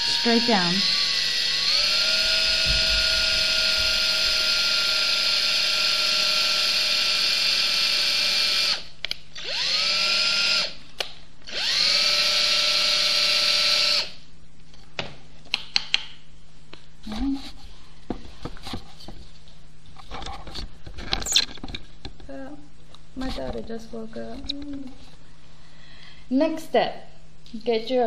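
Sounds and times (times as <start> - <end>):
electric drill whine: 0.0 - 10.8, 11.5 - 14.2.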